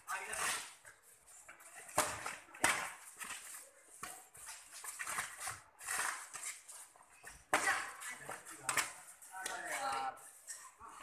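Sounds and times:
racket smacking shuttlecock: 1.6s - 9.7s.

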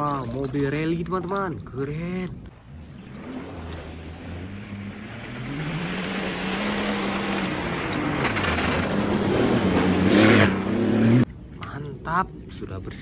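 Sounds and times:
tyres on gravel: 0.0s - 2.5s
rally car engine revving: 3.0s - 11.3s.

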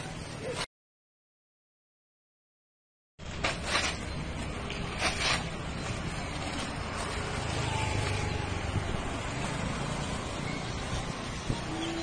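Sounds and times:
low street rumble: 3.2s - 12.0s
paper tearing and crumpling: 4.9s - 5.6s.

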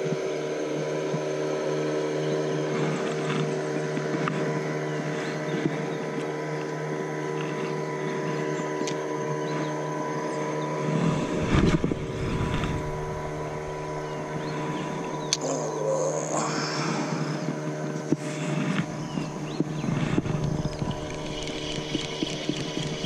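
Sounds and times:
motor-like hum: 0.0s - 23.0s
low rumble: 10.8s - 17.6s, 18.8s - 23.0s.

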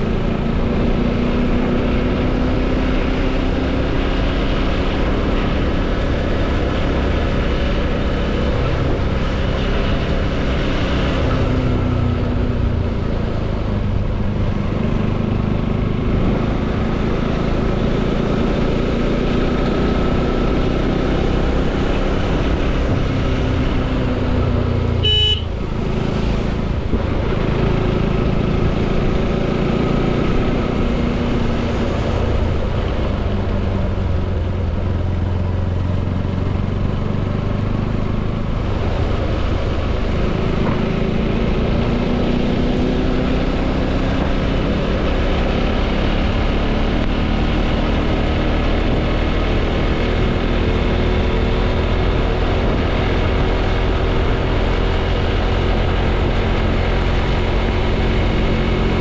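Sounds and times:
motorcycle engine running: 0.0s - 59.0s
horn beep: 25.0s - 25.6s.

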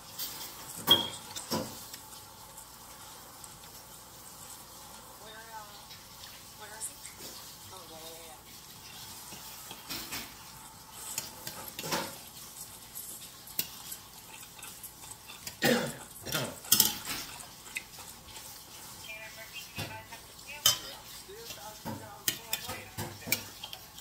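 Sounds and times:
person chewing and crunching: 12.3s - 18.4s.

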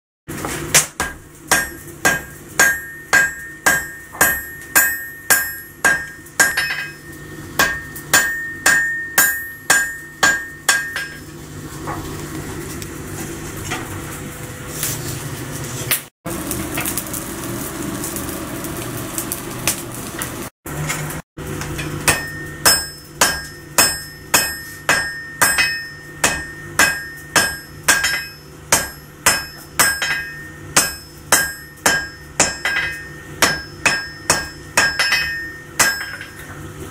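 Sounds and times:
hammer striking steel on anvil: 0.3s - 11.3s, 21.6s - 36.6s.

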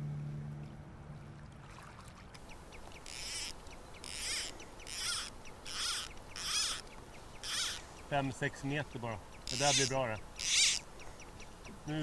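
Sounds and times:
fly reel ratchet buzzing: 3.0s - 6.8s, 7.4s - 7.8s, 9.4s - 10.8s.

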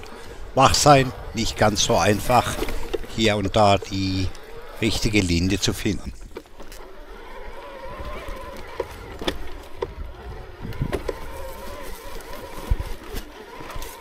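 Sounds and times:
electric bike motor whining: 0.0s - 14.0s
bike knocks and rattles: 7.8s - 14.0s
wind rumble on microphone: 7.9s - 13.1s.

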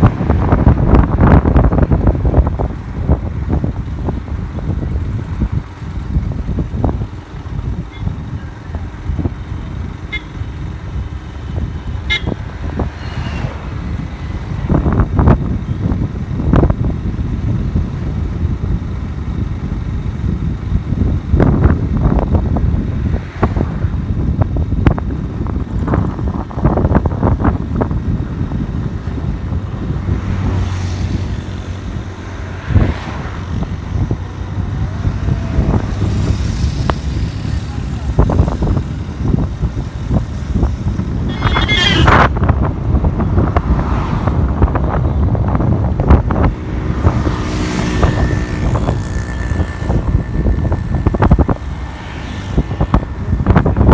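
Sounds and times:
low motorcycle rumble: 0.0s - 53.9s
wind buffeting microphone: 0.0s - 53.9s
vehicle horn toot: 10.1s - 10.4s, 12.0s - 12.4s, 41.2s - 42.3s.

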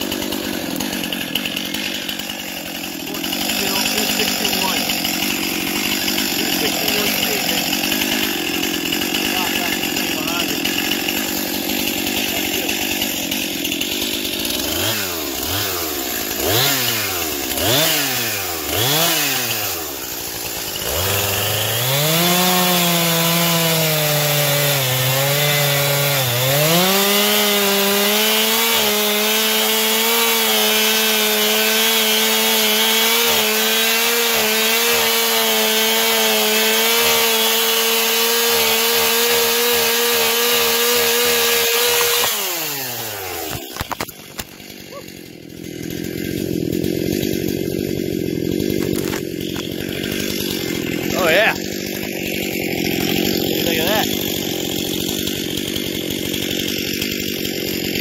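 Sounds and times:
chainsaw revving and cutting: 0.0s - 58.0s.

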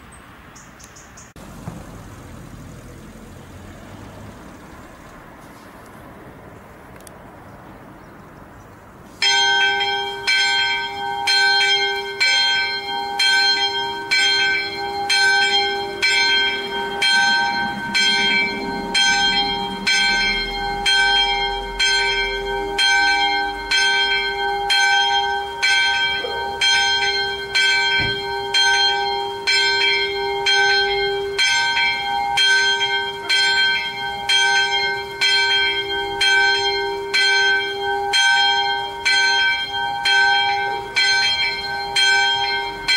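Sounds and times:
small church bell ringing: 9.2s - 42.9s.

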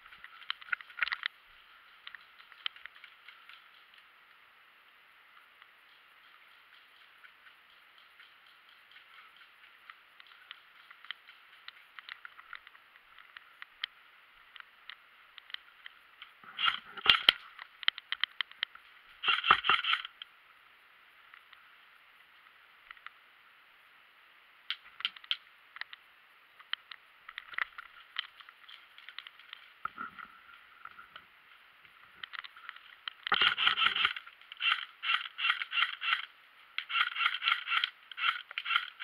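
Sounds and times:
gear clicking and rattling: 5.8s - 13.9s, 14.5s - 20.2s, 32.2s - 39.0s
airsoft gun firing bursts: 19.2s - 20.0s, 33.4s - 39.0s.

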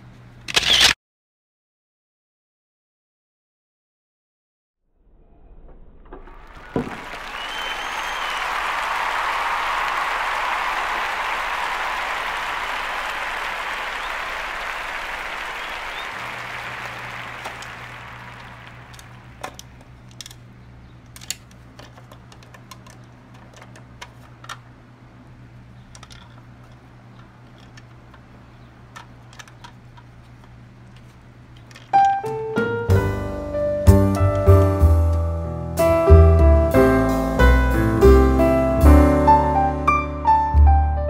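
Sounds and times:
applause: 6.4s - 19.4s
plastic toy clicks and knocks: 18.9s - 20.4s, 21.1s - 24.6s, 25.9s - 26.8s, 27.4s - 28.3s, 28.9s - 30.1s, 31.6s - 32.2s.

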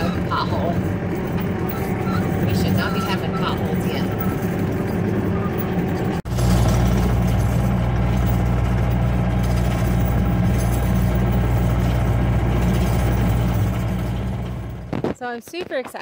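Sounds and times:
skid loader engine running: 0.0s - 15.2s.

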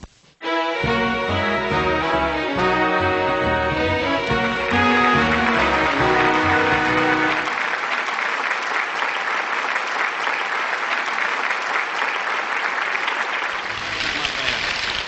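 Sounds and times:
orchestral theme music: 0.4s - 7.6s
studio audience applauding: 1.4s - 15.0s.

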